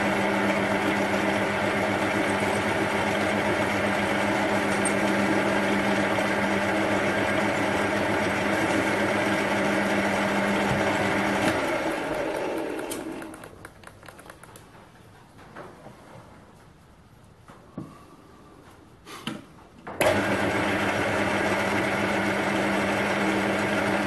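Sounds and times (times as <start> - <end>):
metal lathe motor hum: 0.0 - 13.3, 20.0 - 24.0.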